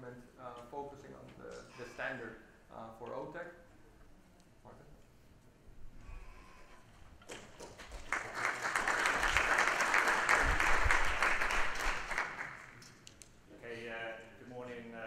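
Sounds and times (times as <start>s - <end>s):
audience applauding: 7.3s - 12.8s.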